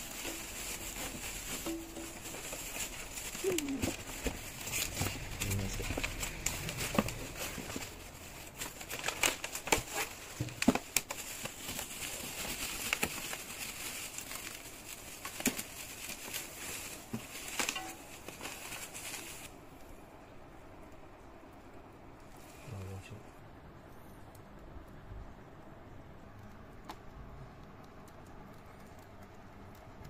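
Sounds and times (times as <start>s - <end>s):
bubble wrap crinkling: 0.0s - 19.9s.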